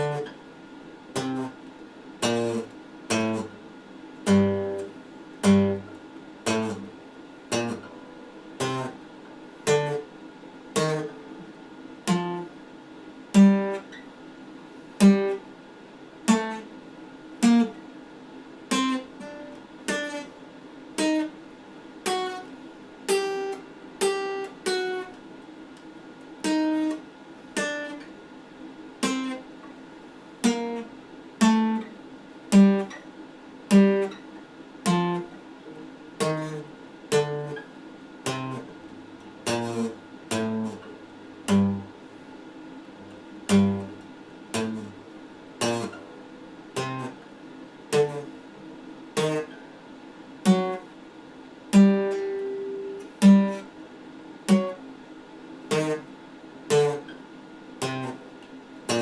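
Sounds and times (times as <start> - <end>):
acoustic guitar chords: 0.0 - 0.4, 1.1 - 12.6, 13.3 - 14.0, 15.0 - 15.5, 16.2 - 16.8, 17.4 - 17.8, 18.6 - 21.4, 22.0 - 25.2, 26.4 - 28.1, 29.0 - 29.7, 30.4 - 42.2, 42.8 - 49.8, 50.4 - 50.9, 51.7 - 53.8, 54.4 - 54.9, 55.7 - 57.2, 57.8 - 59.0.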